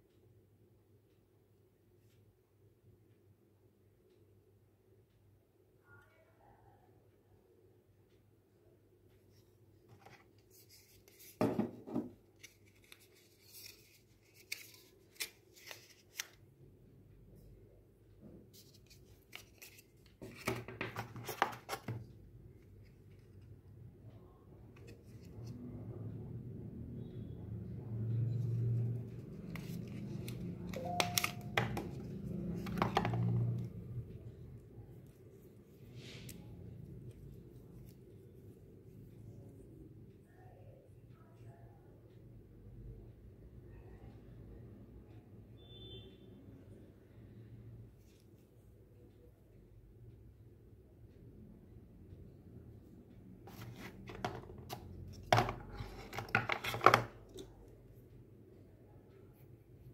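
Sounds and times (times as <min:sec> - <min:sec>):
paper sleeve rustling and scraping: 0:53.5 - 0:54.7.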